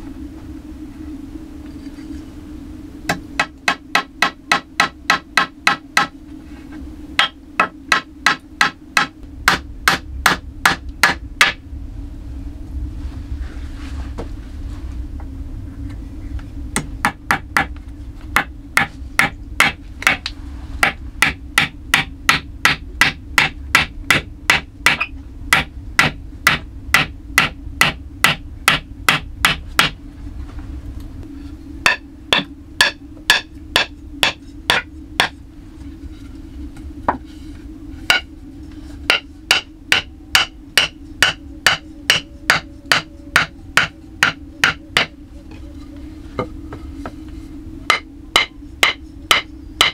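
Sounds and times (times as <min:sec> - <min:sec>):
hammer strikes: 0:03.1 - 0:06.1, 0:07.2 - 0:11.6, 0:18.4 - 0:30.0, 0:31.8 - 0:35.4, 0:38.1 - 0:38.3, 0:39.1 - 0:45.1, 0:47.9 - 0:49.9.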